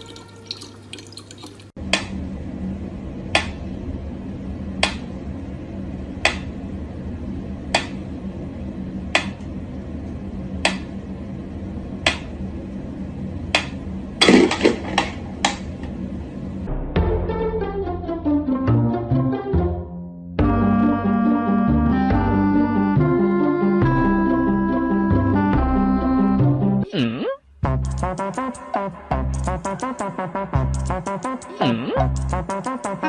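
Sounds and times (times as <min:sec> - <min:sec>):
tap water running: 0:00.0 - 0:01.8
steady low hum: 0:01.6 - 0:17.0, 0:27.4 - 0:33.0.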